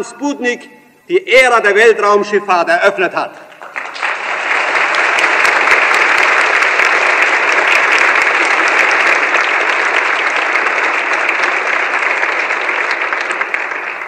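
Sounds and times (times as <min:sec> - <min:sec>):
large audience applauding: 0:03.4 - 0:14.0.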